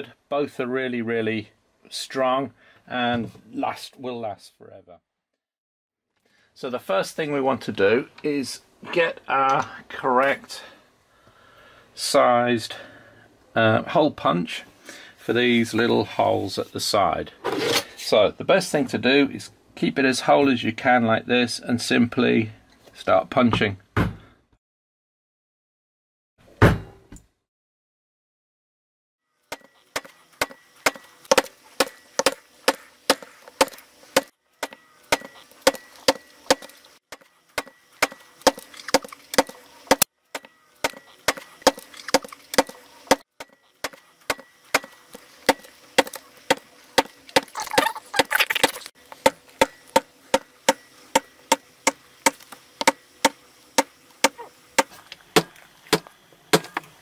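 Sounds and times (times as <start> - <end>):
mallet knocking hole punch: 49.2 - 56.8.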